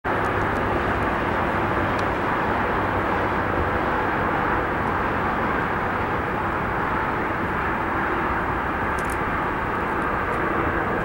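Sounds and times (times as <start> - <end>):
airliner jet noise rushing: 0.1 - 11.0.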